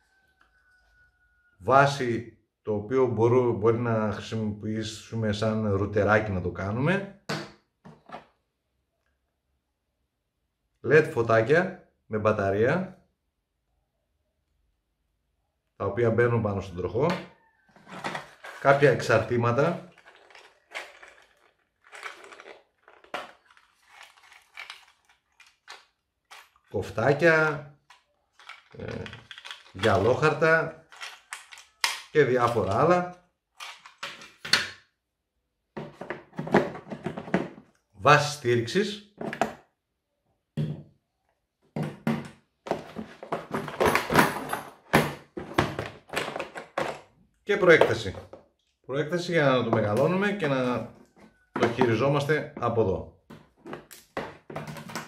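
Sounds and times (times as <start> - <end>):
knocks and clatter of handling: 7.3 - 8.4, 17.1 - 32.8, 33.6 - 34.7, 35.8 - 37.8, 39.2 - 39.7, 41.7 - 47.1, 50.9 - 52.0, 53.3 - 55.0
plastic packaging rustling: 17.8 - 32.7.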